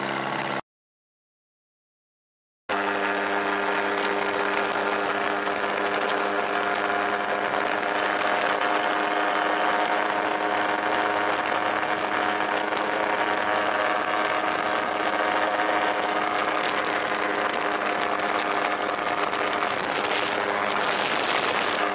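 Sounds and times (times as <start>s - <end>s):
aircraft engine and propeller drone: 0.0s - 0.6s, 2.7s - 21.9s
rushing air: 14.4s - 21.9s.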